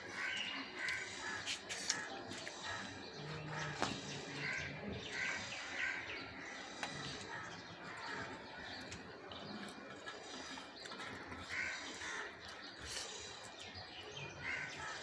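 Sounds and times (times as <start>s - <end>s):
crows cawing: 0.1s - 8.9s, 11.1s - 13.2s, 14.4s - 15.0s.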